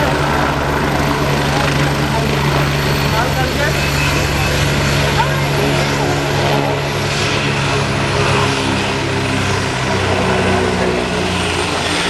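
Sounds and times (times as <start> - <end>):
high turbine whine: 0.0 - 12.0
helicopter rotor thrum: 0.2 - 9.8.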